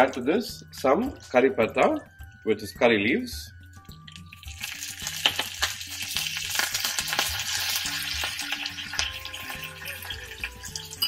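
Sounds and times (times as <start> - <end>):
curry leaves sizzling in oil: 4.0 - 11.0.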